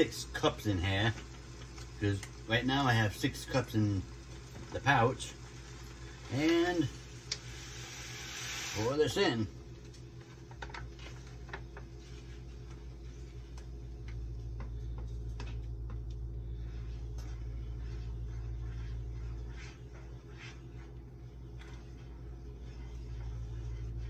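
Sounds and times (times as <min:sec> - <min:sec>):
low steady rumble: 0:00.0 - 0:24.0
spoon stirring in saucepan: 0:15.3 - 0:24.0.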